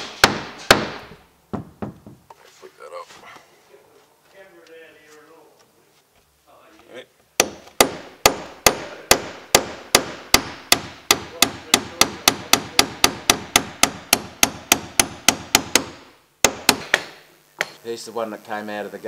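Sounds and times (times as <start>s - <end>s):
hammer striking nail punch: 7.4s - 17.8s.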